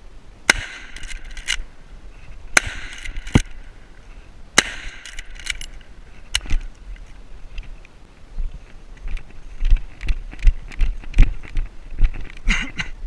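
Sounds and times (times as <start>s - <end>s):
rifle shots: 0.5s - 1.6s, 2.6s - 3.6s, 4.6s - 5.7s
metallic clicks of rifle lever: 0.9s - 1.6s, 2.8s - 3.6s, 4.9s - 7.7s.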